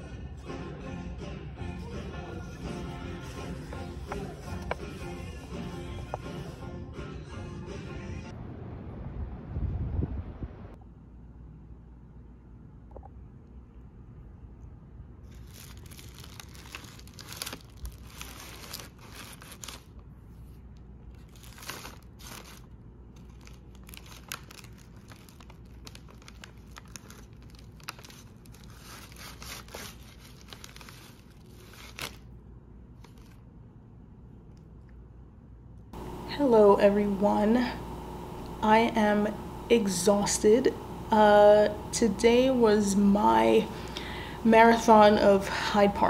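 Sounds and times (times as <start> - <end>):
paper wrapper crinkling: 15.3 - 33.5.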